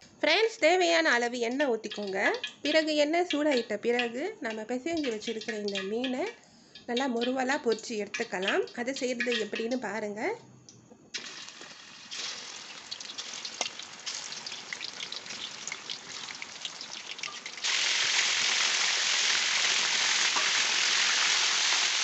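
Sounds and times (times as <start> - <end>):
fish sizzling in hot oil: 11.2 - 22.0
crackling pops of oil: 12.9 - 17.7.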